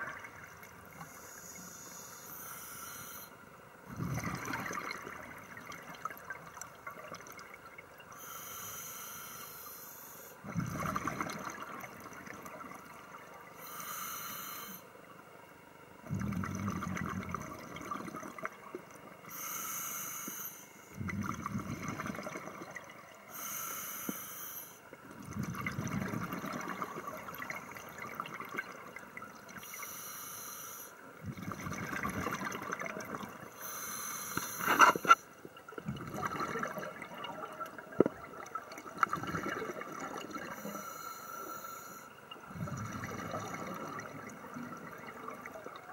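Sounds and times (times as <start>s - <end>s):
regulator inhale hissing: 0.9s - 3.4s, 8.2s - 10.4s, 13.6s - 14.9s, 19.3s - 21.0s, 23.3s - 24.9s, 29.6s - 31.0s, 33.5s - 35.2s, 40.5s - 42.2s
bubbling exhaled air: 3.9s - 6.3s, 10.4s - 13.0s, 16.0s - 18.6s, 21.0s - 23.7s, 25.2s - 29.6s, 31.2s - 35.2s, 35.8s - 45.9s.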